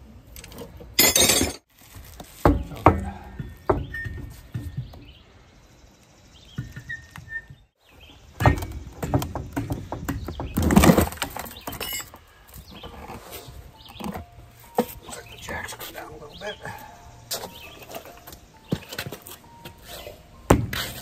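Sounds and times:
metal knocks and clinks: 0.4 - 1.6, 11.5 - 12.2
birds chirping: 2.5 - 20.4.

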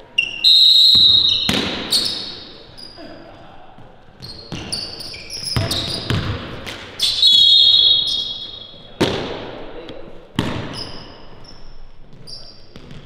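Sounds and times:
referee's whistle: 0.2 - 2.5, 7.0 - 8.9
basketball bouncing on hardwood floor: 5.5 - 6.6, 10.4 - 11.0.

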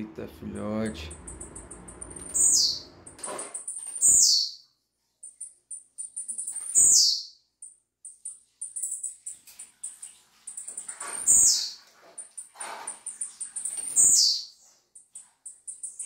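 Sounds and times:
bird calling sharp descending notes: 1.1 - 3.1
rapid thin high ticks: 7.6 - 16.0.

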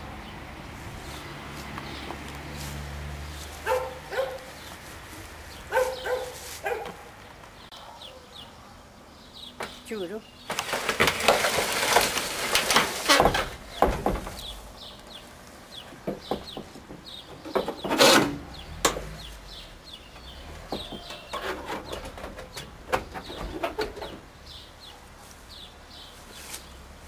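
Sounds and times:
chickens clucking: 3.6 - 7.1, 13.1 - 25.3
sheet-metal door clattering: 12.6 - 14.6.

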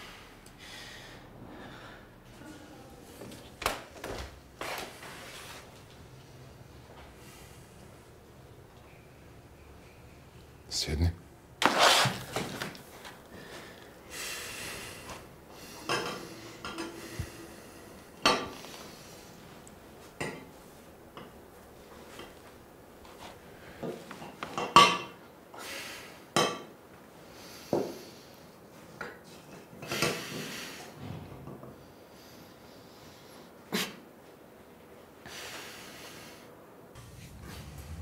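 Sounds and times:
dishes and cutlery clinking: 15.8 - 17.0.

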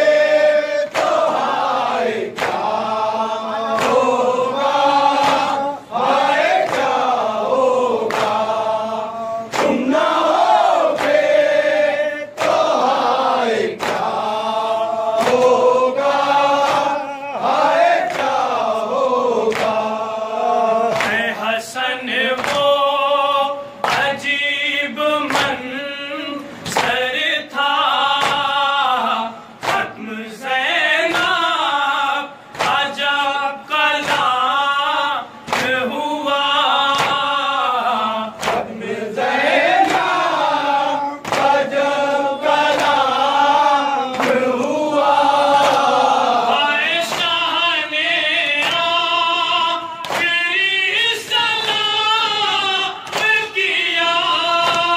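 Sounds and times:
men chanting over microphone: 0.0 - 54.9
hand slapping chest: 0.9 - 1.7, 2.3 - 2.8, 3.7 - 4.2, 5.1 - 5.7, 6.5 - 7.1, 8.0 - 8.5, 9.5 - 11.4, 12.3 - 13.0, 13.8 - 14.2, 15.2 - 15.6, 16.6 - 17.0, 19.5 - 19.8, 20.9 - 21.2, 28.2 - 28.5, 32.5 - 32.9, 35.5 - 35.8, 36.9 - 37.3, 38.4 - 38.8, 39.7 - 40.3, 41.2 - 41.7, 44.1 - 44.6, 50.0 - 50.3, 54.6 - 54.9.

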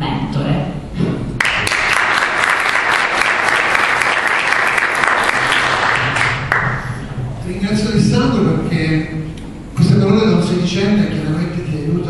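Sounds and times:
audience applauding: 1.4 - 7.0.

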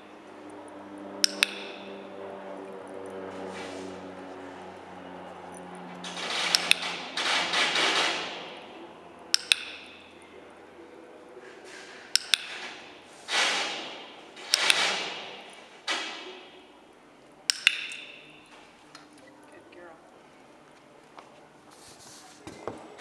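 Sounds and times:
training clicker clicking: 1.2 - 1.8, 9.3 - 10.1, 12.1 - 12.8, 14.4 - 15.2, 17.4 - 18.3.

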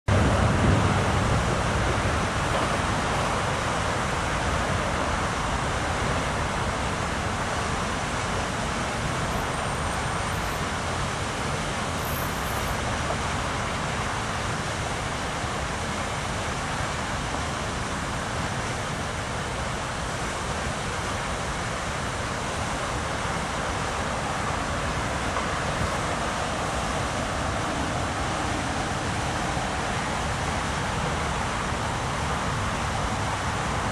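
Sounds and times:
road traffic hum: 0.1 - 33.9.

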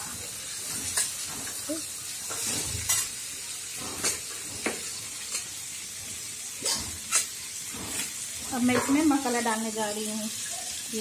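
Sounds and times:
chickpeas sizzling in hot oil: 0.0 - 11.0.

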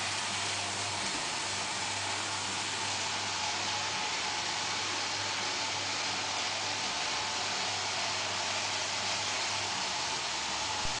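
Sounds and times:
robot vacuum running: 0.0 - 11.0.

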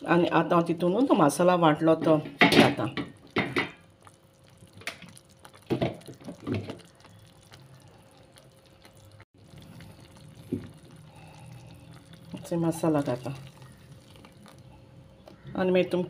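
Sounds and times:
liquid dripping: 2.9 - 16.0
wet paste poured into pot: 3.9 - 14.7.

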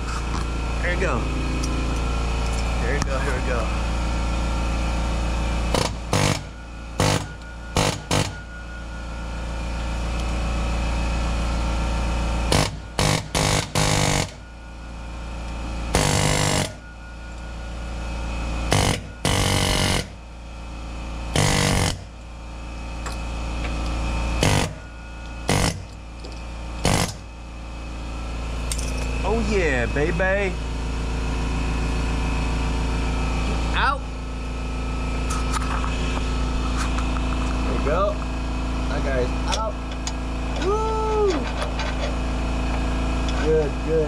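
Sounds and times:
pneumatic air hammer bursts: 5.7 - 8.5, 12.5 - 14.4, 15.9 - 16.8, 18.7 - 20.2, 21.3 - 22.1, 24.4 - 24.8, 25.4 - 26.0, 26.8 - 27.3.

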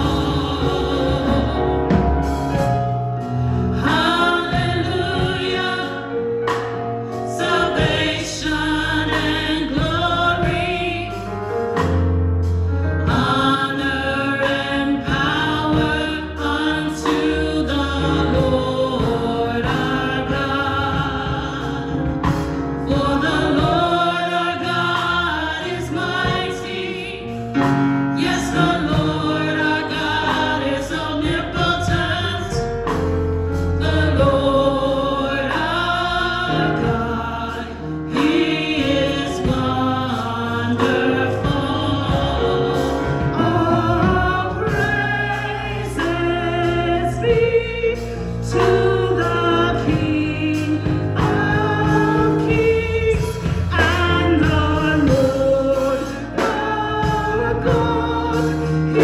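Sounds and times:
instruments with a steady beat: 0.0 - 8.2
gospel choir singing: 0.0 - 59.0.

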